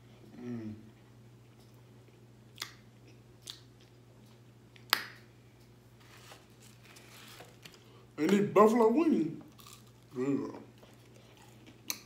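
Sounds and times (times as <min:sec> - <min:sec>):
faint low hum: 0:00.0 - 0:12.0
wet mouth smacks: 0:02.5 - 0:03.7
chewing: 0:09.5 - 0:12.0.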